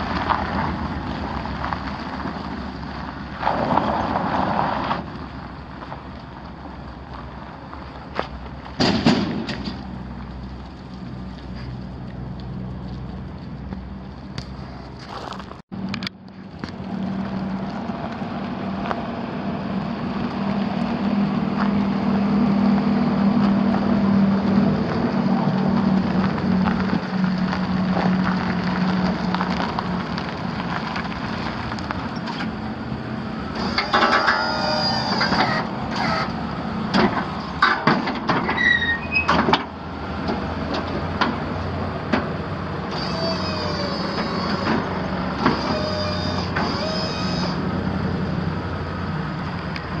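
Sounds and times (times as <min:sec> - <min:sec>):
truck engine idling: 0:05.1 - 0:50.0
short squeaks: 0:33.5 - 0:36.4, 0:38.4 - 0:39.5, 0:42.9 - 0:47.7
hydraulic pump whine: 0:33.5 - 0:37.8, 0:42.8 - 0:49.0.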